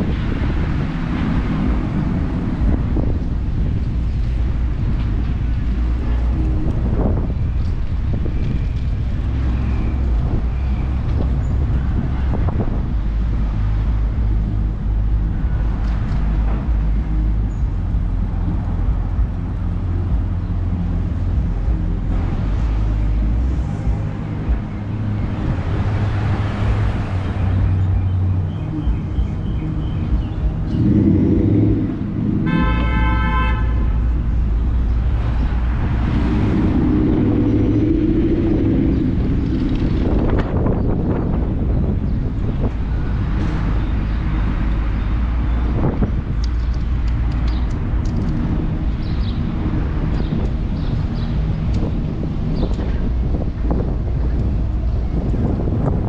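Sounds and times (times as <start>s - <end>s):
car road noise rumble: 0.0s - 56.0s
car horn toot: 32.4s - 34.1s.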